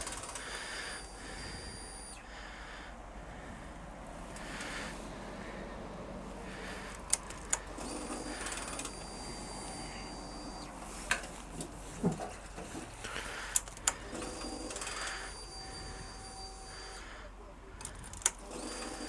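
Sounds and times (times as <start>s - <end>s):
sharp clicks of controls: 0.0s - 2.3s, 4.3s - 4.9s, 6.6s - 17.1s, 17.8s - 19.0s
high mechanical whir: 0.0s - 19.0s.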